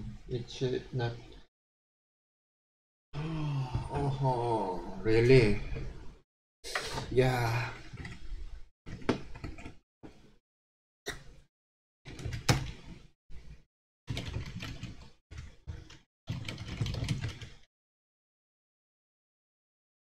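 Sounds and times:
keyboard typing: 14.1 - 17.6.

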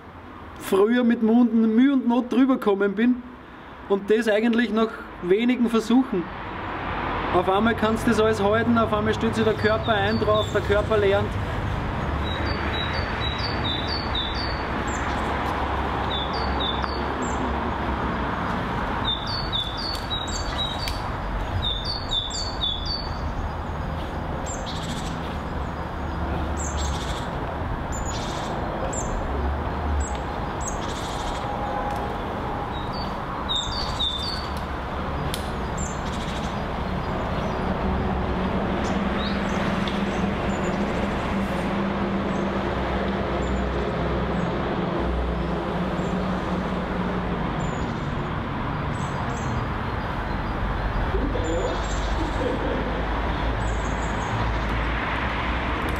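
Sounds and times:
small birds chirping: 9.3 - 31.6, 32.2 - 37.8, 38.8 - 41.1, 48.9 - 54.8.

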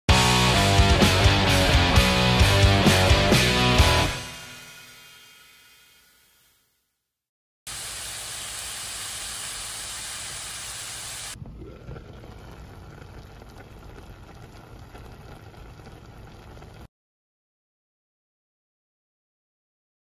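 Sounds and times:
vegetables sizzling in a pot: 7.7 - 11.4.

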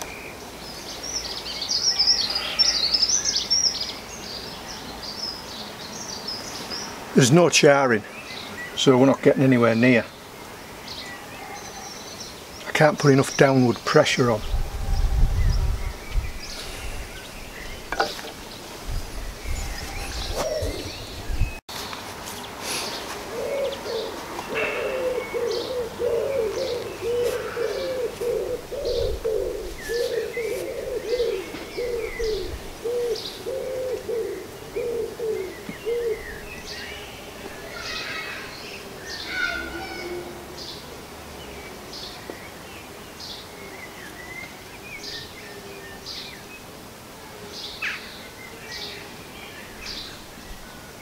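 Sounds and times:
birds chirping and tweeting: 0.0 - 51.0
bird cooing: 19.6 - 21.6, 22.9 - 36.7, 39.3 - 40.6.

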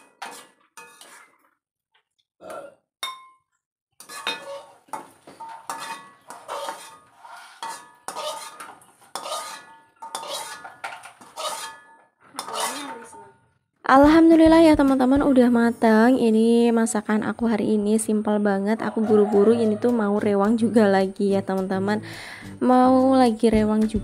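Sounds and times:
metal spatula scraping a wok: 0.0 - 1.5, 4.0 - 13.2.

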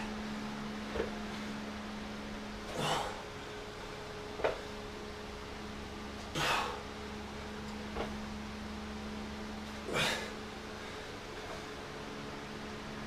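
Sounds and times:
steady low hum: 0.0 - 13.0
man breathing out hard: 2.7 - 3.6, 6.3 - 6.9, 9.8 - 11.7.

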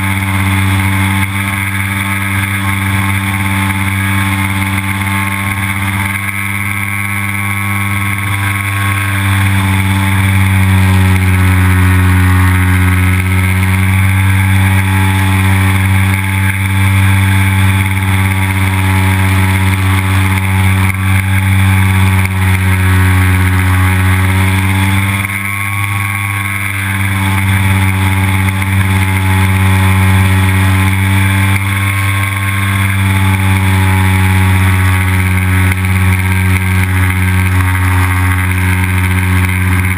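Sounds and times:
model airplane engine drone: 0.0 - 39.9.

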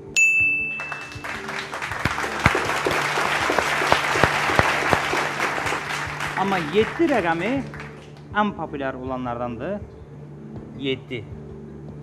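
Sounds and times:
background music: 0.0 - 12.0
electronic game-show chime: 0.2 - 1.6
audience applause: 0.8 - 8.3.

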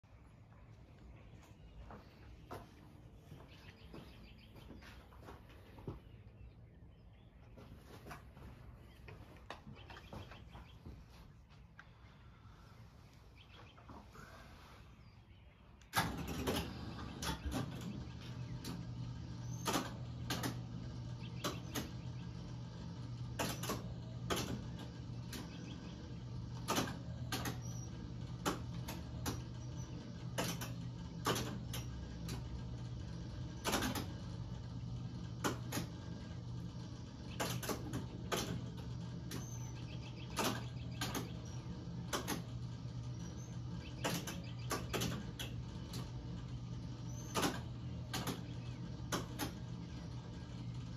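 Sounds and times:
steady electrical hum: 0.0 - 50.9
relays clicking and clacking: 15.8 - 50.9.

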